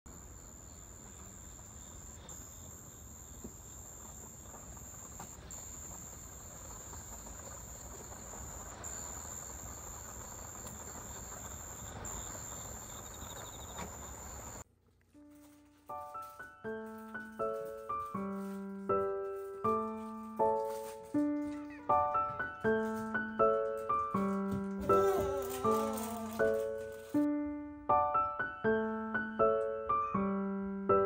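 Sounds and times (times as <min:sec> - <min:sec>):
insects trilling: 0:00.1 - 0:14.6, 0:19.6 - 0:27.3.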